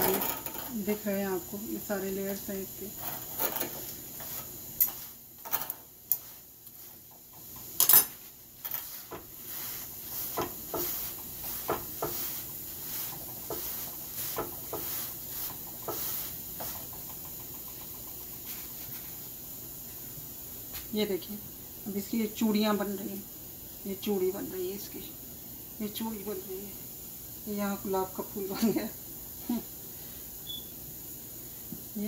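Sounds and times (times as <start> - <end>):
sticks knocking on iron griddle: 9.0 - 9.4, 10.3 - 18.4.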